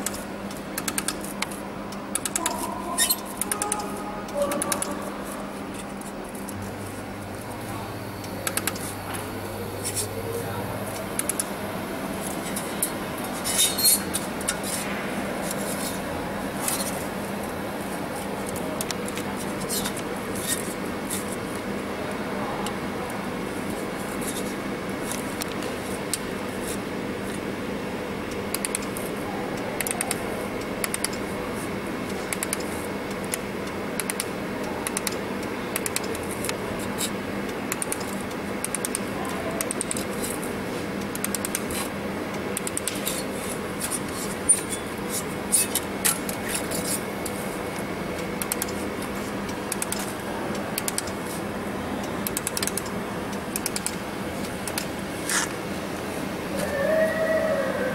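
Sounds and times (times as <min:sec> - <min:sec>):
laser welder ticks: 0:00.0 - 0:05.0, 0:08.2 - 0:08.9, 0:11.0 - 0:11.6, 0:18.4 - 0:20.9, 0:25.1 - 0:29.2, 0:29.8 - 0:31.3, 0:31.9 - 0:43.4, 0:47.2 - 0:51.3, 0:52.0 - 0:55.0
steady hum: 0:00.0 - 0:57.9.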